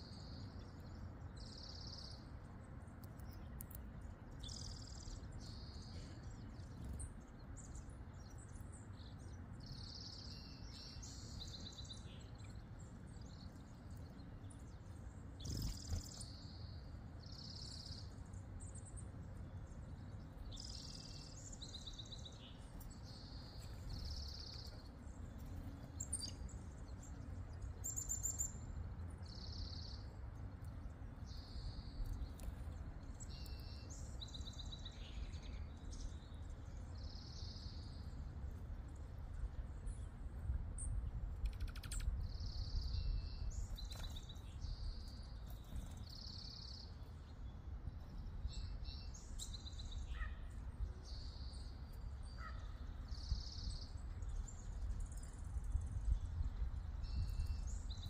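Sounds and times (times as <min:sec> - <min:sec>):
low steady background rumble: 0:00.0 - 0:58.0
songbirds chirping: 0:00.0 - 0:58.0.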